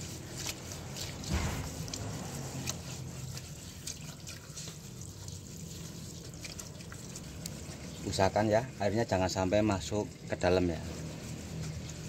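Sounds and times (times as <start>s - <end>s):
hand scrubbing soapy water: 0.0s - 12.0s
water dripping: 0.4s - 8.2s.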